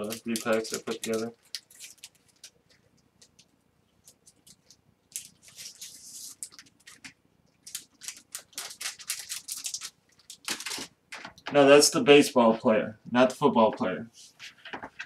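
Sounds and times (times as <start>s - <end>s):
plastic sleeves crinkling: 0.0s - 11.7s.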